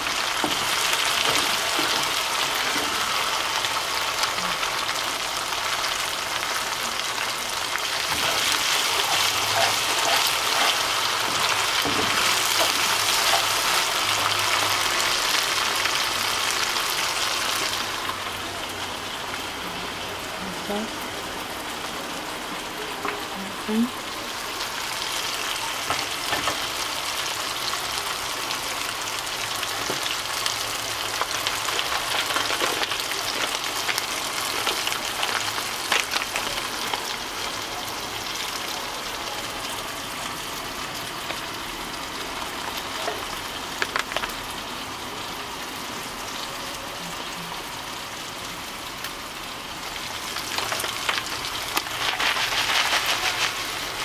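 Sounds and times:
paste sizzling in hot oil: 0:00.0 - 0:18.3, 0:24.3 - 0:38.7, 0:49.8 - 0:54.0.

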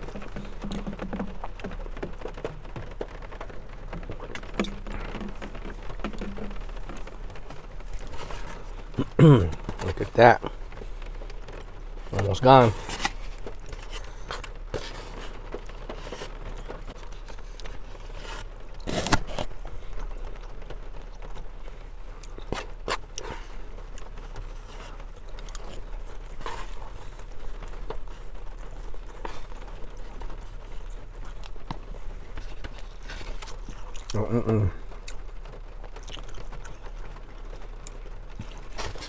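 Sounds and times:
chewing: 0:07.8 - 0:10.5, 0:12.7 - 0:39.0.

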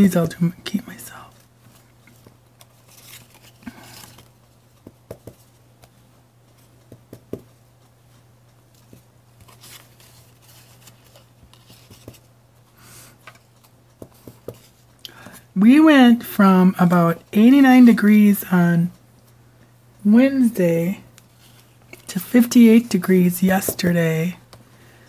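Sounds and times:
low steady hum: 0:00.0 - 0:25.0
paper rustling: 0:01.3 - 0:07.2, 0:08.1 - 0:12.3
rubber stamp tapping on paper: 0:04.8 - 0:05.5, 0:06.8 - 0:07.5, 0:14.0 - 0:14.7.

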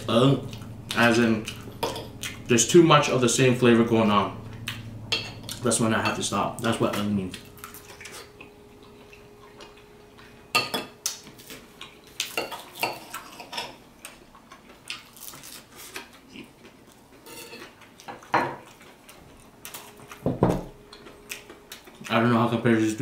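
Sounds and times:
cutlery clinking on a plate: 0:17.3 - 0:18.6.

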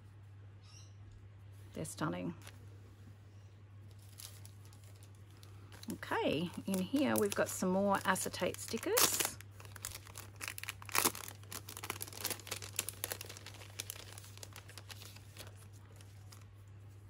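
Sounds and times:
paper and plastic sheets rustling: 0:03.9 - 0:17.0.

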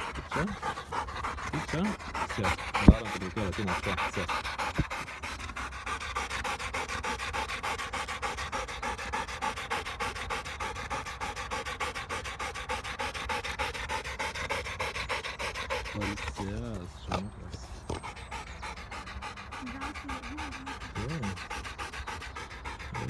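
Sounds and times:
dog panting rapidly: 0:00.0 - 0:23.0.

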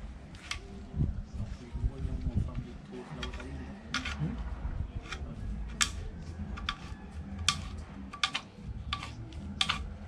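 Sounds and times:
knife scraping plastic pipe: 0:03.2 - 0:04.4, 0:06.6 - 0:10.0.

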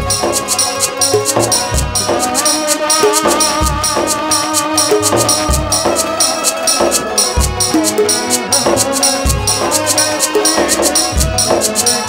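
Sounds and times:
hand drum beat: 0:00.0 - 0:12.0
harmonium held notes: 0:00.0 - 0:12.0
jingling percussion: 0:00.0 - 0:12.0.

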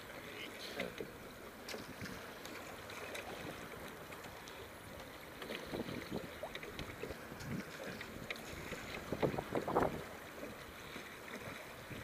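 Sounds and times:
oars splashing: 0:00.0 - 0:12.0
water sloshing against boat hull: 0:00.0 - 0:12.0.

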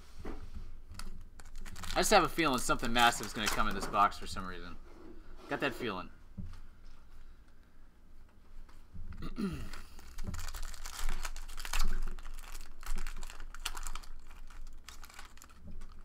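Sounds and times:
foil wrapper tearing and crinkling: 0:01.0 - 0:03.8, 0:09.7 - 0:16.0.

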